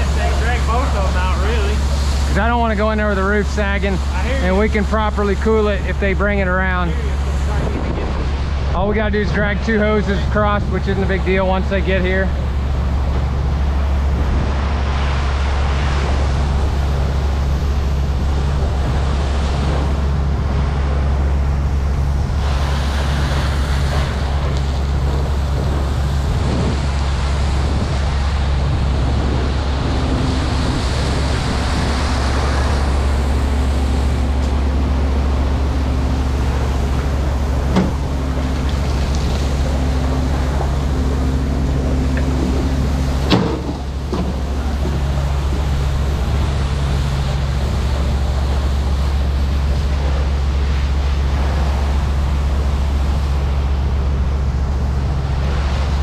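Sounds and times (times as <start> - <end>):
engine droning: 0.0 - 56.0
sharp knocks: 37.7 - 38.0, 43.2 - 45.0.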